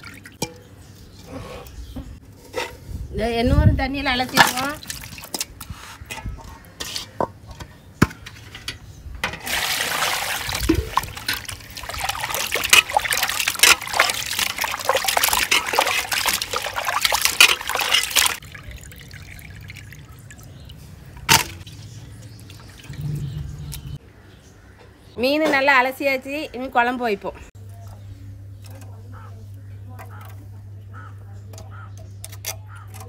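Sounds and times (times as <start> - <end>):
water splashing and sloshing in bowl: 0.0 - 1.4, 4.2 - 6.2, 9.2 - 24.0.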